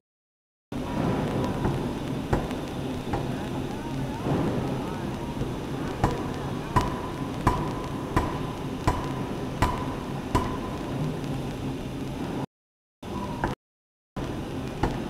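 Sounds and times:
forging hammer blows ringing: 0:06.8 - 0:10.8.

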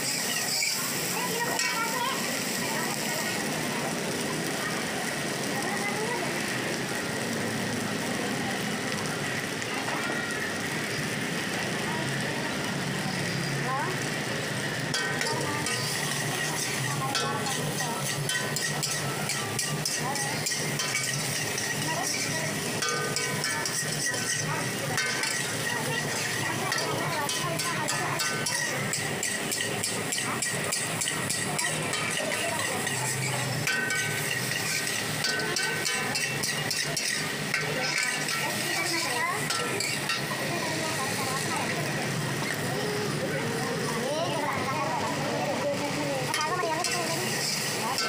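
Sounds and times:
metal ladle scraping a wok: 0:00.0 - 0:03.4, 0:14.8 - 0:42.6, 0:45.8 - 0:48.0
sizzle of frying: 0:00.0 - 0:48.0.

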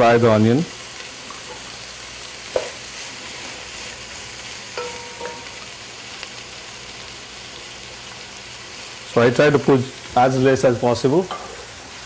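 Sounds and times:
onions sizzling in hot oil: 0:00.0 - 0:12.0
ringing knocks against pot: 0:04.8 - 0:05.5
sharp clink: 0:04.8 - 0:05.6.

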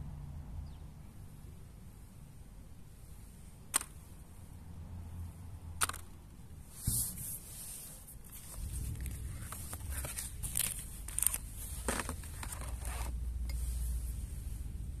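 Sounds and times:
cardboard box rustling and scraping: 0:06.7 - 0:13.2
low rumble: 0:08.4 - 0:12.5.

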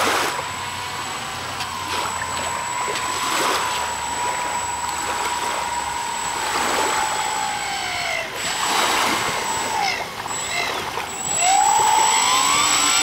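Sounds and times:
model plane motors whining: 0:00.0 - 0:13.0.

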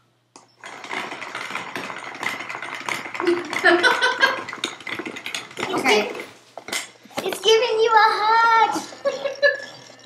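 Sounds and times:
woman laughing: 0:03.2 - 0:04.5, 0:08.8 - 0:09.9.

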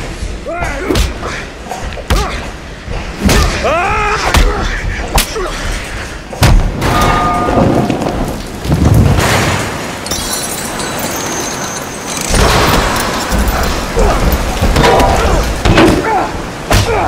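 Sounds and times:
rushing water: 0:07.0 - 0:17.0.

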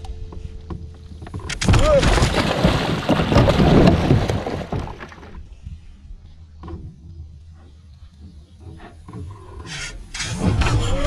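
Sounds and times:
splashing and thrashing in water: 0:01.6 - 0:05.4.

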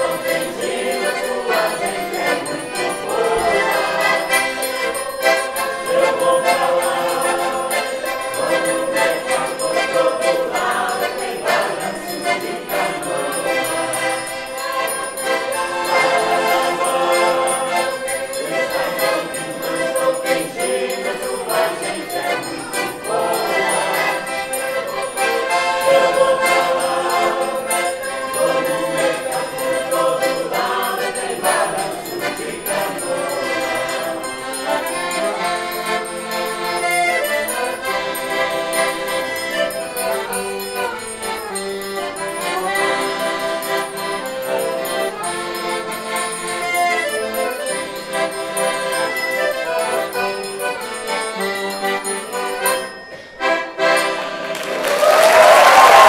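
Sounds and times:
mixed choir singing in harmony: 0:00.0 - 0:39.1, 0:54.7 - 0:56.0
accordion: 0:00.0 - 0:56.0.

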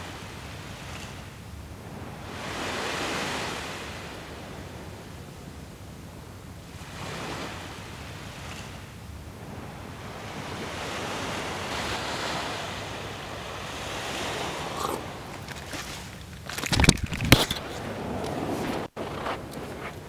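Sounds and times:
surf washing onto beach: 0:00.0 - 0:05.7, 0:06.6 - 0:20.0.

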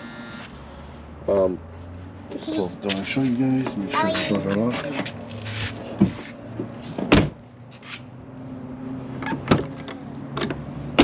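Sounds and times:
car door shutting with thud: 0:07.0 - 0:07.4.

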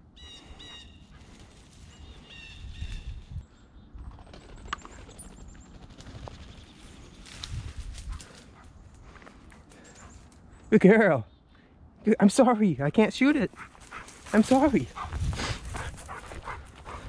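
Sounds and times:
footsteps crunching through dry grass: 0:07.2 - 0:09.5, 0:13.5 - 0:17.0
songbird chirping: 0:09.1 - 0:15.3.

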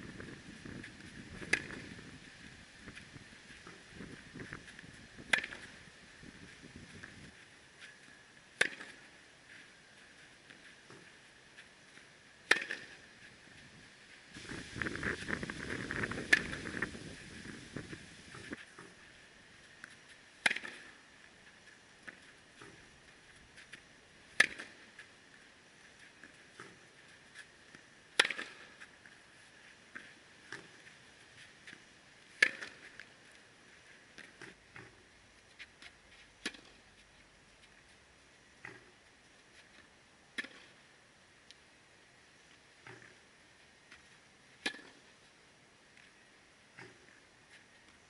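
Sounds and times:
scuffing crackling noise: 0:00.0 - 0:40.0
tennis balls struck with racket: 0:01.3 - 0:02.0, 0:03.6 - 0:05.8, 0:08.6 - 0:09.1, 0:12.4 - 0:13.1, 0:15.9 - 0:16.9, 0:19.8 - 0:21.0, 0:24.3 - 0:25.0, 0:27.4 - 0:29.0, 0:29.9 - 0:30.8, 0:31.6 - 0:33.1, 0:34.2 - 0:35.0, 0:36.4 - 0:36.8, 0:38.6 - 0:38.9, 0:40.3 - 0:40.8, 0:44.6 - 0:45.0
tennis ball struck: 0:01.4 - 0:02.0, 0:05.2 - 0:05.8, 0:08.6 - 0:09.0, 0:12.4 - 0:13.0, 0:16.0 - 0:16.8, 0:20.4 - 0:21.0, 0:24.4 - 0:24.8, 0:28.2 - 0:28.8, 0:32.4 - 0:33.0, 0:44.6 - 0:45.0.

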